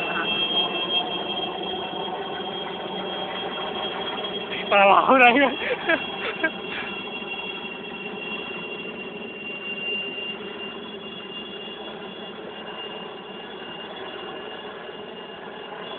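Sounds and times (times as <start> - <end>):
helicopter running: 0.0 - 15.9.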